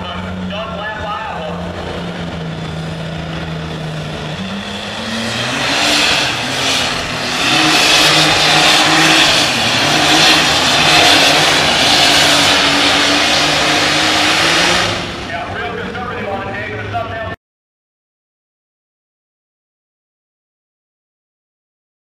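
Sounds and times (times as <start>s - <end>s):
tractor engine revving at full throttle: 0.0s - 17.2s.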